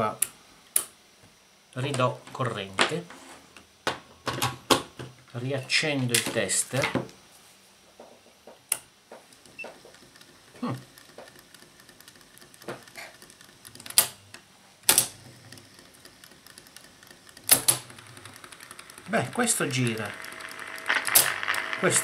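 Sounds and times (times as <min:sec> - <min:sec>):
faint background hiss: 0:00.0 - 0:09.8
clicks and knocks of hands working: 0:08.5 - 0:21.9.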